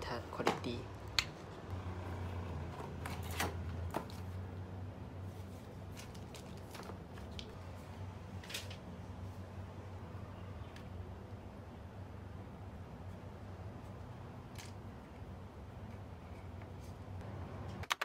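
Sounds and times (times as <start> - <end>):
cardboard and paper rustling: 5.2 - 7.6.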